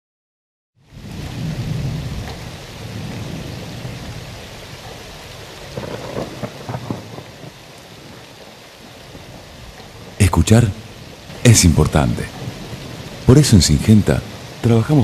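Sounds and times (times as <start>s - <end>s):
steady rain: 0.8s - 15.0s
rolling thunder: 0.9s - 15.0s
sharp thunder cracks: 1.0s - 4.4s, 5.6s - 8.2s.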